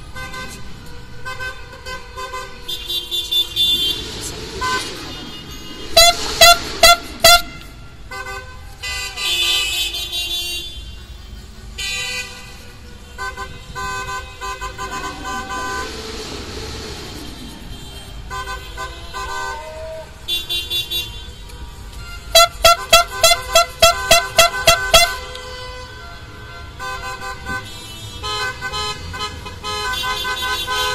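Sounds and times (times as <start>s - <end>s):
car horns honking: 0.0s - 16.5s, 17.2s - 30.9s
car passing: 3.2s - 8.7s, 13.7s - 19.5s.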